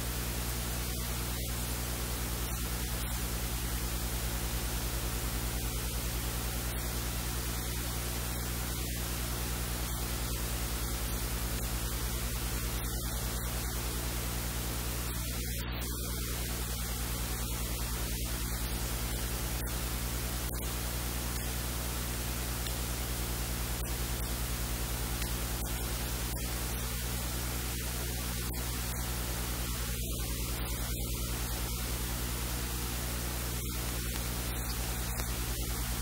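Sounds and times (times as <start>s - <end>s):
low electrical hum: 0.0s - 36.0s
steady hiss: 0.0s - 36.0s.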